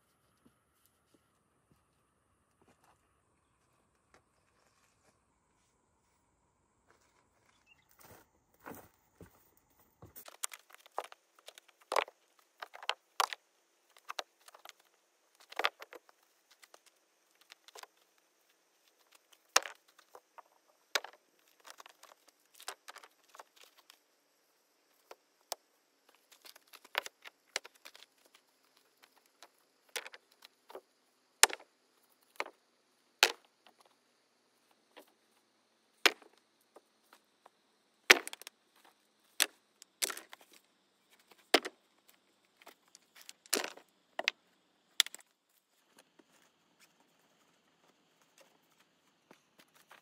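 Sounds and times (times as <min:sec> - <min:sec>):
stones knocking and clicking: 0:10.0 - 0:24.1, 0:24.8 - 0:32.6, 0:33.2 - 0:34.0, 0:36.0 - 0:45.3.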